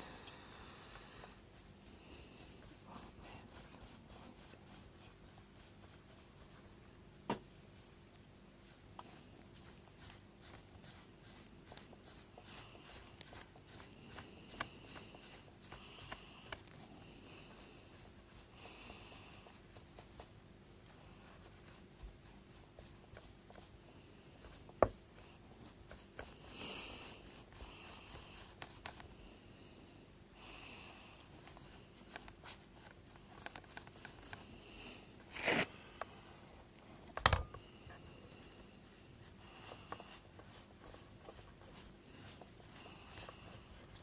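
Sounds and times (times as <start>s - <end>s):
plastic scraping and rustling: 31.4s - 36.2s.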